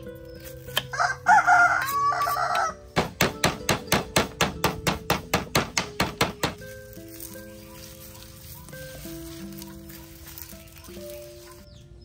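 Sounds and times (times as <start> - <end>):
rooster crowing: 0.9 - 2.8
knife chopping on wooden board: 3.0 - 6.6.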